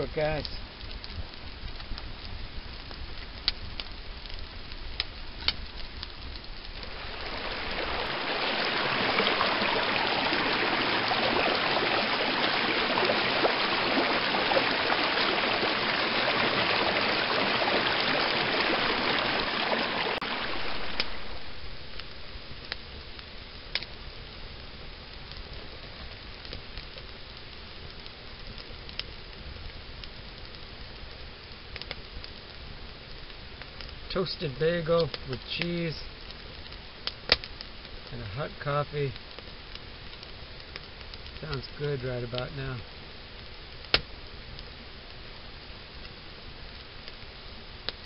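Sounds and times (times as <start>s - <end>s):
wood fire crackling and popping: 0.0s - 48.0s
stream rushing over rocks: 6.5s - 22.7s.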